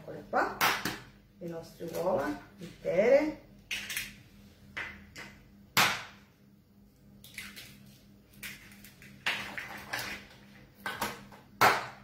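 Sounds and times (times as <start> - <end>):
eggs cracking on plastic bowl: 7.2 - 12.0.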